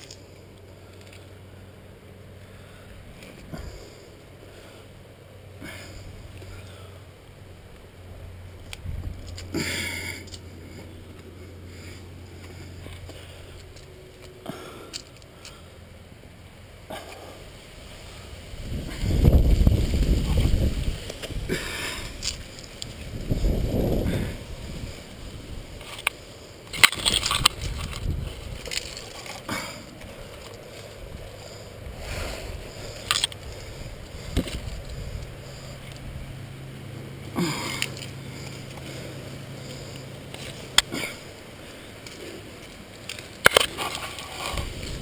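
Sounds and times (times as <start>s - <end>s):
leaves and branches crackling: 0.0s - 45.0s
hands and shoes scraping rock: 42.0s - 45.0s.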